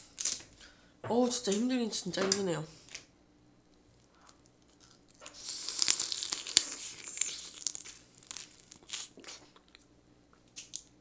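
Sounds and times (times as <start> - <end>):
crab shell cracking: 4.0 - 9.9.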